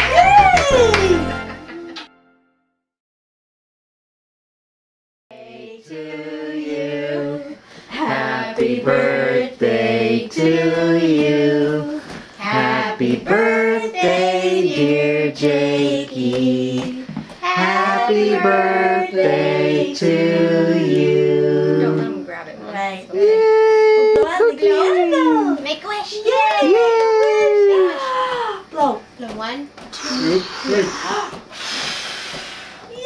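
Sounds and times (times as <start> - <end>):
voices singing held notes: 5.3 - 22.3.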